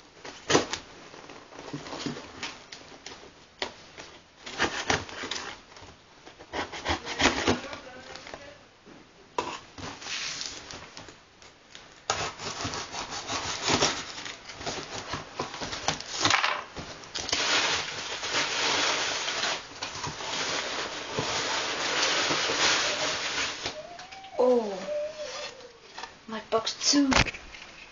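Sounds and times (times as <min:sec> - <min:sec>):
cardboard rubbing and scraping: 0:12.1 - 0:16.3.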